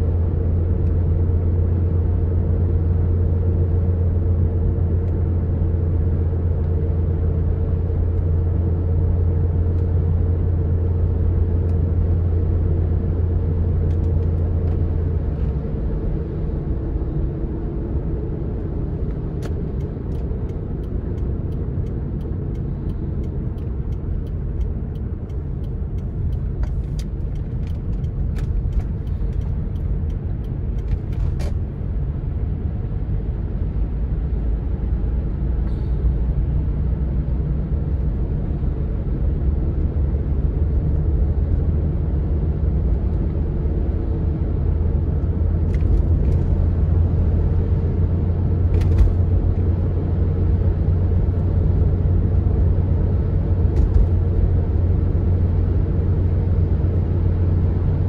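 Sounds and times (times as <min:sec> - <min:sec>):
car road and engine drone: 0:00.0 - 0:58.0
light ticks: 0:19.0 - 0:31.2.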